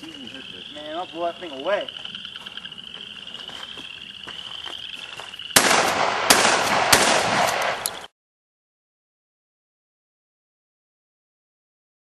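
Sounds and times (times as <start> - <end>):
frogs or insects trilling: 0.0 - 5.9
gunshot cracks: 5.6 - 8.1.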